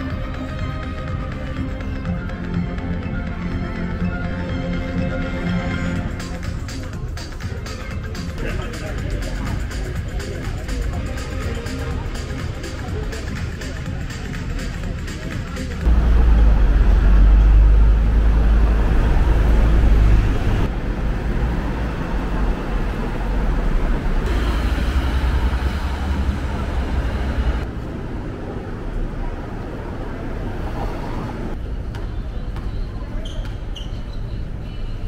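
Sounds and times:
low engine rumble: 5.4 - 33.2
cars and buses passing: 8.4 - 35.0
short high squeaks: 33.2 - 34.4.

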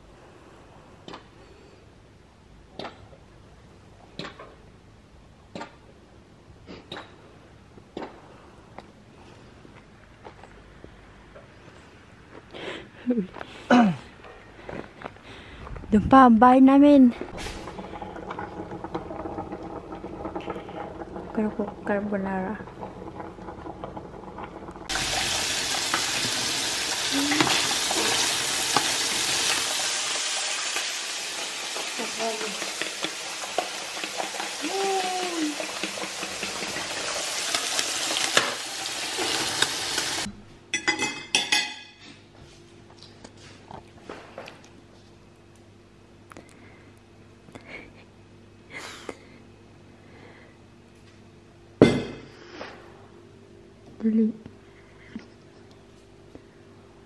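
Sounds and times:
bacon sizzling in pan: 17.4 - 40.3.

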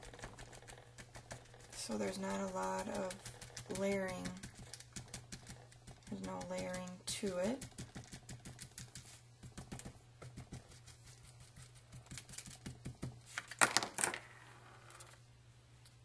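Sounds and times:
glue pen tapping on cardstock: 7.4 - 10.7.

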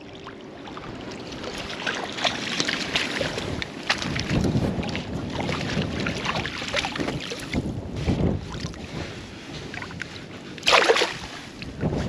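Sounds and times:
wind buffeting microphone: 0.0 - 12.0
water splashing in a net: 0.1 - 7.5, 10.6 - 11.3.

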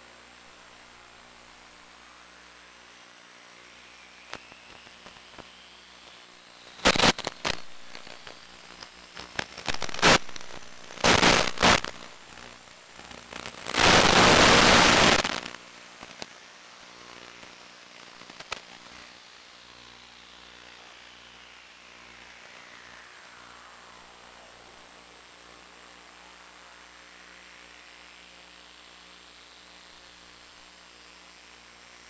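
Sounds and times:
static crackling bursts: 0.0 - 27.0
faint hiss: 0.0 - 32.0.

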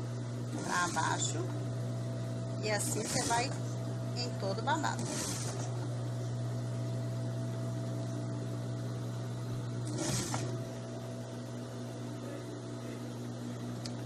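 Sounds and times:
sewing machine motor humming: 0.0 - 1.6, 2.6 - 6.0, 9.7 - 10.8.

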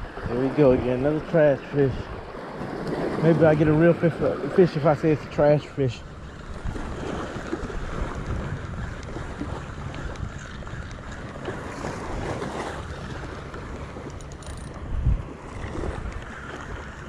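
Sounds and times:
wind buffeting microphone: 6.0 - 17.0.

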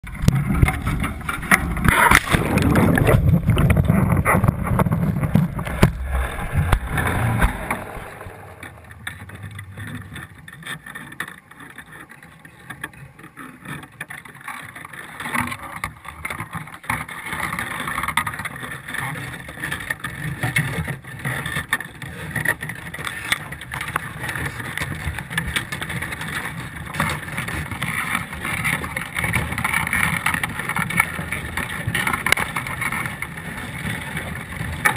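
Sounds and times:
rumbling and knocking: 0.0 - 10.7
underwater clicks: 0.0 - 11.5
muffled underwater noise: 0.0 - 13.6.

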